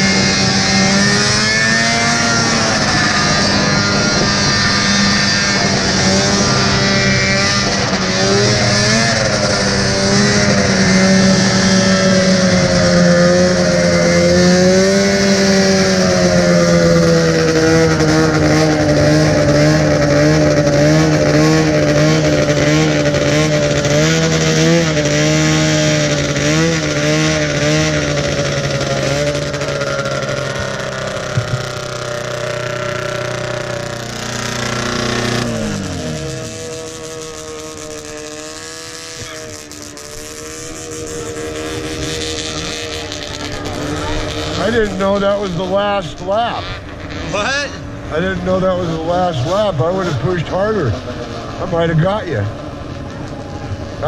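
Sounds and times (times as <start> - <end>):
two-stroke snowmobile engine: 0.0 - 54.0
wind rush: 2.4 - 8.5.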